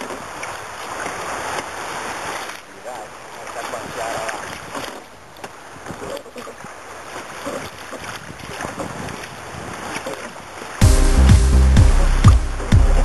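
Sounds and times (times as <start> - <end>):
water slapping against hull: 0.0 - 13.0
wind buffeting microphone: 7.6 - 10.1.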